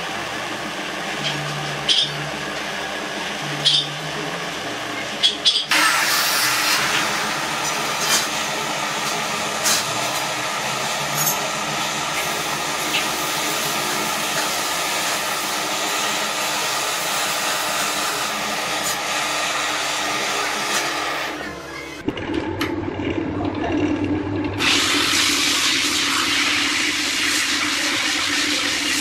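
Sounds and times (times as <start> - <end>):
gas torch hissing: 24.6 - 29.0.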